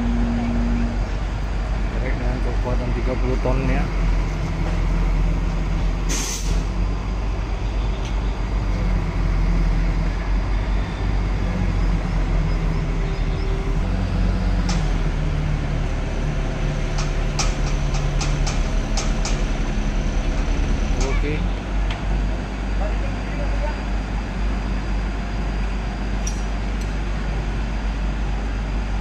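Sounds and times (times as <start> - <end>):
diesel truck engine running: 0.0 - 29.0
air hiss: 6.1 - 6.7.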